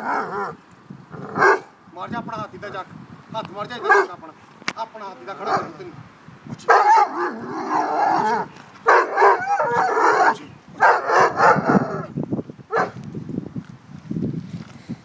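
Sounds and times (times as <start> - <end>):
dog barking: 1.4 - 1.7, 3.8 - 4.1, 5.4 - 5.7, 6.7 - 12.0, 12.7 - 13.0.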